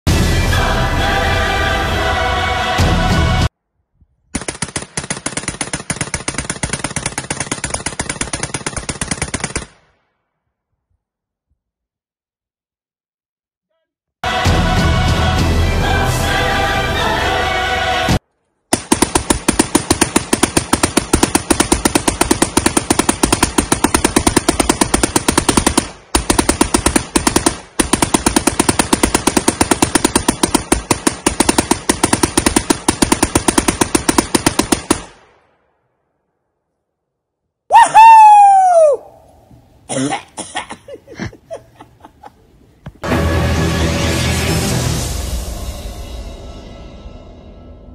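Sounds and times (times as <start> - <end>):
machine gun firing burst: 4.4 - 9.7, 18.7 - 35.1.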